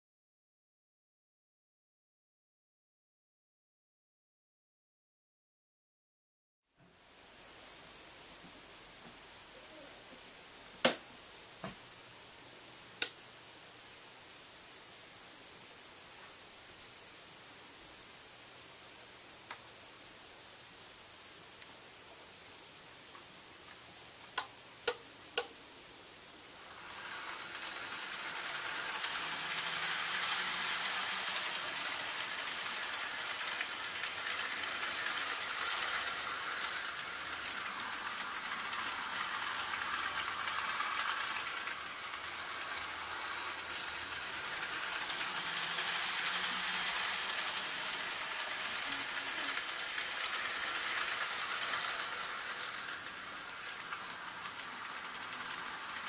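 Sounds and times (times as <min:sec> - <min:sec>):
model train rattling on track: 0:26.6 - 0:56.0.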